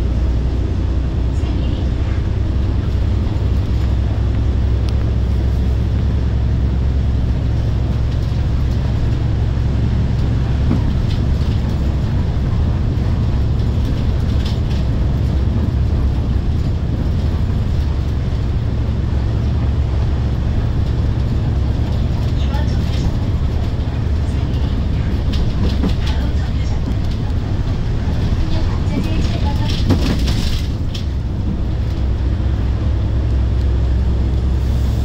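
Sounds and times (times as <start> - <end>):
bus engine rumble: 0.0 - 35.0
road noise: 0.0 - 35.0
faint rattles: 20.6 - 32.1.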